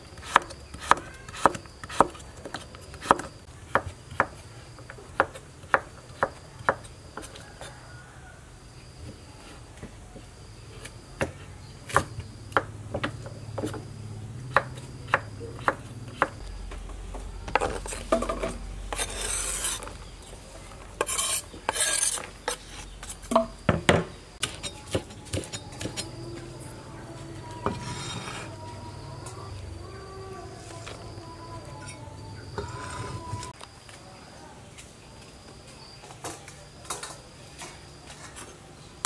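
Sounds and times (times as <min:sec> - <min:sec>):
slices scraped into plastic basket: 0:18.9 - 0:20.0.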